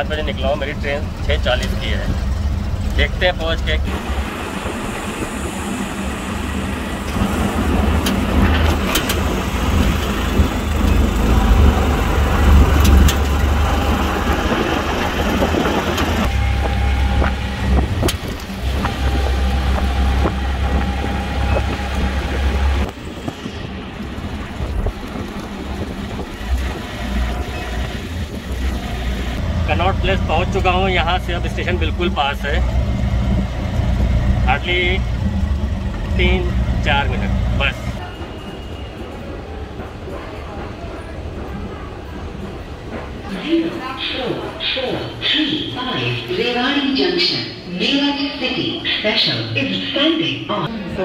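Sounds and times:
road and traffic noise: 0:00.0 - 0:51.0
wind buffeting microphone: 0:03.8 - 0:29.4.

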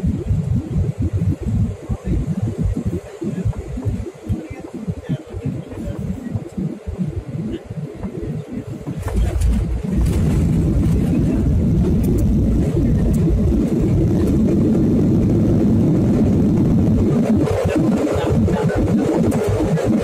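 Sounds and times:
jet engine reverse thrust rumble: 0:00.0 - 0:20.0.

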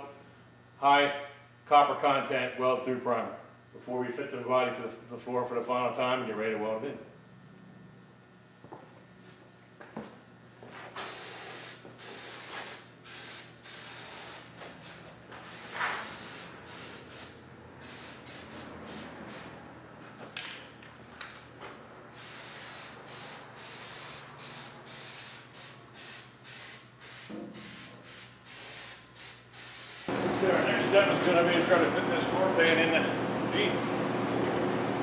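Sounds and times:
aerosol can spraying bursts: 0:11.0 - 0:19.6, 0:22.2 - 0:30.8.

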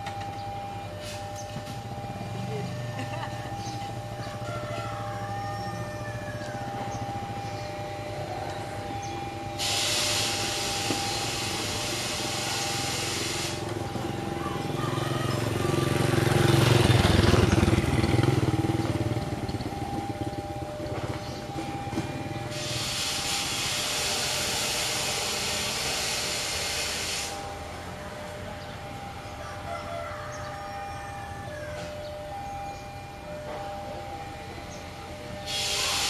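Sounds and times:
diesel locomotive engine rumble: 0:00.0 - 0:36.0
loud hiss: 0:09.6 - 0:13.7, 0:22.5 - 0:27.4, 0:35.5 - 0:36.0.

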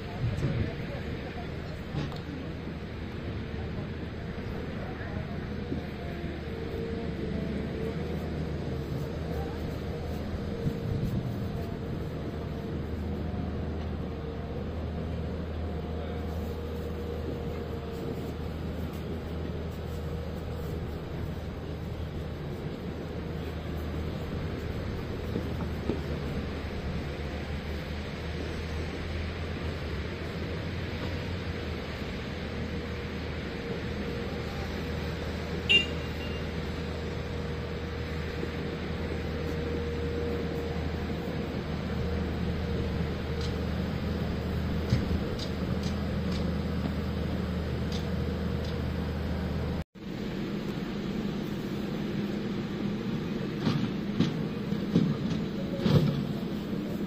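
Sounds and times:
low traffic rumble: 0:00.0 - 0:57.0
street ambience hum: 0:00.0 - 0:57.0
short high beep: 0:35.7 - 0:36.5
faint held tone: 0:35.7 - 0:36.6.

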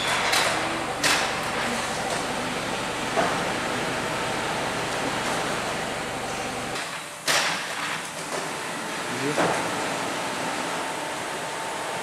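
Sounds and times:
machine running: 0:00.0 - 0:06.8.

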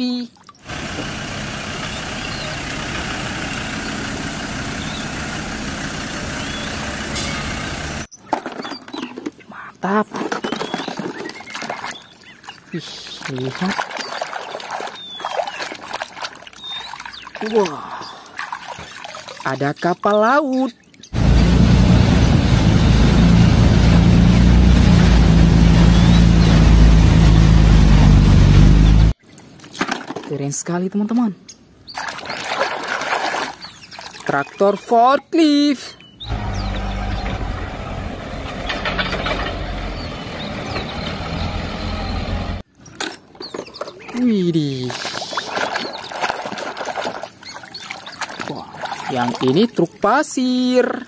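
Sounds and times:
low hum: 0:21.2 - 0:29.2.

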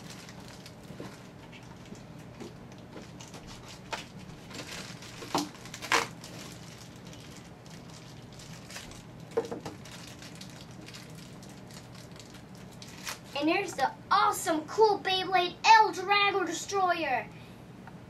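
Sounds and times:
card and plastic crackling: 0:00.0 - 0:13.4.

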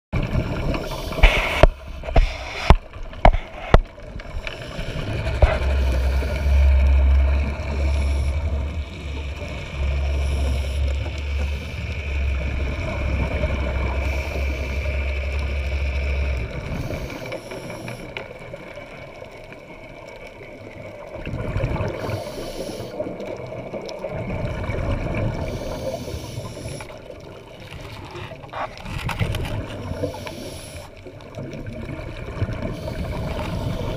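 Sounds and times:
sharp clicks underwater: 0:00.2 - 0:08.5, 0:25.1 - 0:33.9
constant water hiss: 0:00.2 - 0:33.9
steady low drone: 0:04.3 - 0:17.8.

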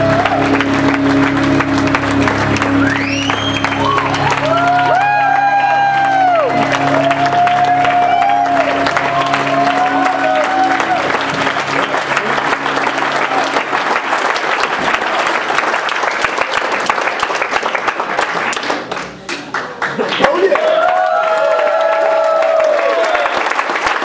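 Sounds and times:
closing music: 0:00.0 - 0:16.6
audience applauding: 0:00.0 - 0:24.0.

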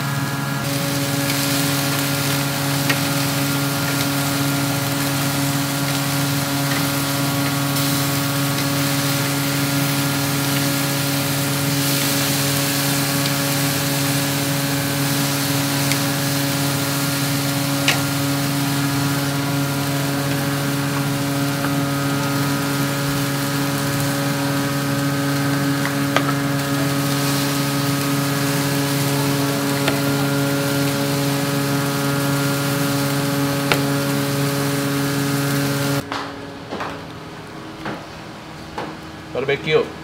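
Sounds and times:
steady motor hum: 0:00.0 - 0:40.0
steaks sizzling on a grill: 0:00.5 - 0:36.0.

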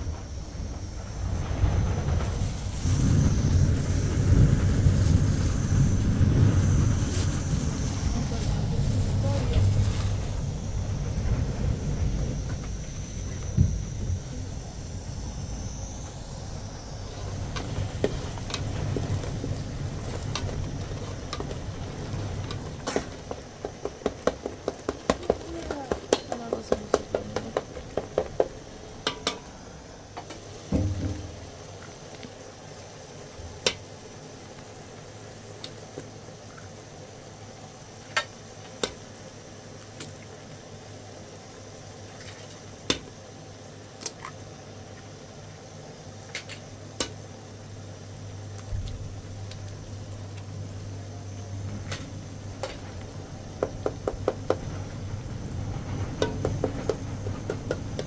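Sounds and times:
steady low hum: 0:00.0 - 0:58.0
heavy thump: 0:30.7 - 0:31.5.

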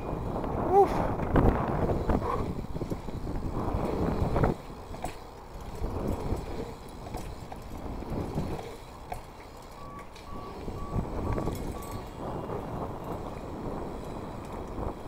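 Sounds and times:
wind rushing over microphone: 0:00.0 - 0:09.1, 0:09.8 - 0:15.0
bike knocks and rattles: 0:00.0 - 0:15.0
bike tyres rumbling on dirt: 0:00.0 - 0:15.0.

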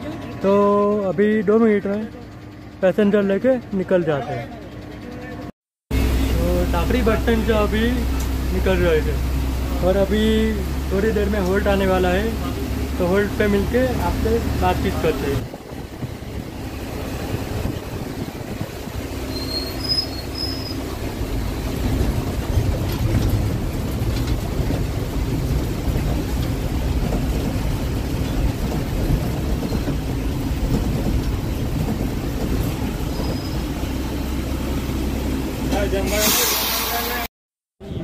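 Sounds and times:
bus engine and road noise: 0:00.0 - 0:38.0
short high squeaks: 0:19.2 - 0:20.9, 0:33.1 - 0:33.8.

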